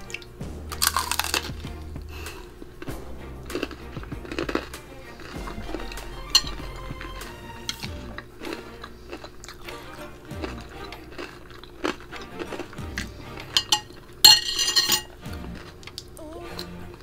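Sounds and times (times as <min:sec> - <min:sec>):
crunchy chewing: 0:00.0 - 0:14.3
metal spoon clinking against bowl: 0:13.6 - 0:15.1.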